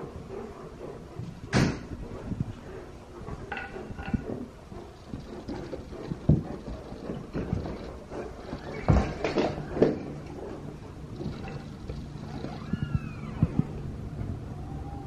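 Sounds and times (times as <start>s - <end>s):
dog paws on tile floor: 0.0s - 13.8s
dog whining: 7.8s - 13.9s.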